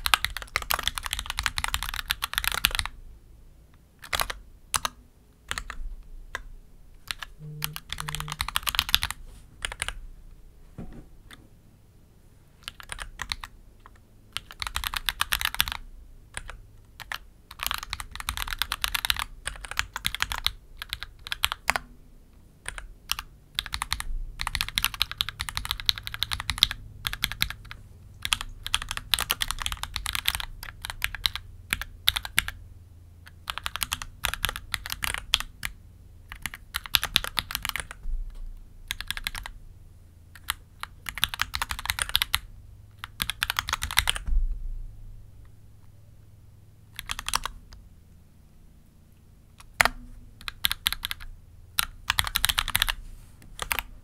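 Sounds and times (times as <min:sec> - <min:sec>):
mechanical keyboard typing: 0:00.0 - 0:03.0, 0:04.0 - 0:10.0, 0:12.6 - 0:21.8, 0:22.6 - 0:32.6, 0:33.3 - 0:38.0, 0:38.8 - 0:39.6, 0:40.3 - 0:44.3, 0:47.0 - 0:47.6, 0:49.6 - 0:53.0, 0:53.6 - 0:53.9.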